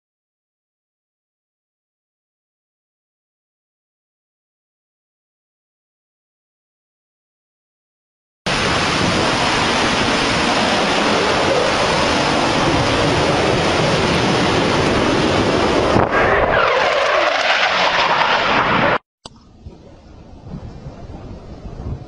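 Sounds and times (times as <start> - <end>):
fighter jet passing low: 8.5 - 19.0
steady rushing roar: 8.5 - 22.0.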